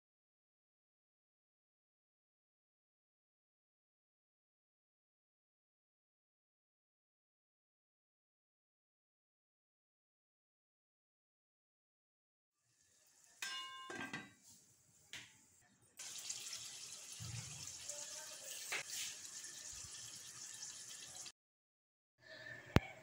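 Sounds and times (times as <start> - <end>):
food sizzling in oil: 12.6 - 13.6, 16.0 - 21.3
scraping from stirring: 18.4 - 21.3.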